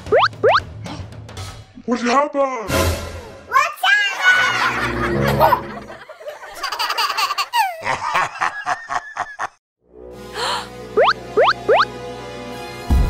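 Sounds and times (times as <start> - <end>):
child laughing: 6.4 - 9.5.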